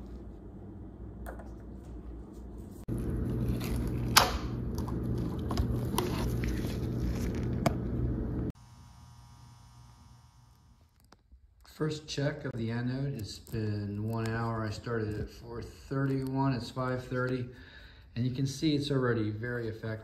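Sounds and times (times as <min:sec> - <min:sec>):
battery charger humming: 0:02.9 - 0:11.1.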